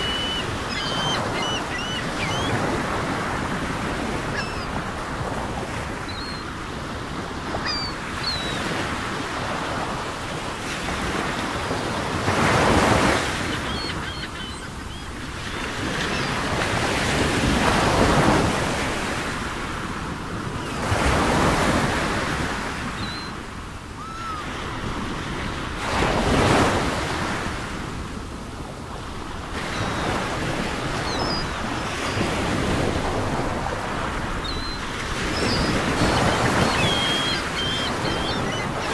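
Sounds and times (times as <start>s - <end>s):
ocean waves washing: 0.0s - 38.9s
faint high chirps: 35.4s - 38.6s.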